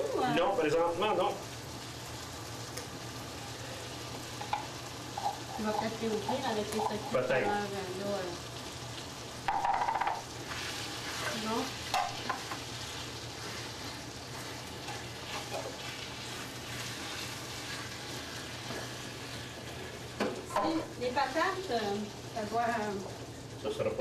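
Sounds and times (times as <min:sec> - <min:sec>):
meat sizzling in a skillet: 0:00.0 - 0:24.0
wooden spoon stirring: 0:09.7 - 0:20.0.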